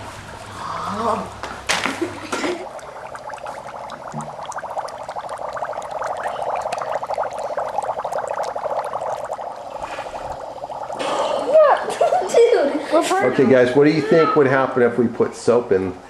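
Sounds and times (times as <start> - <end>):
dry ice bubbling in water: 0.0 - 12.4.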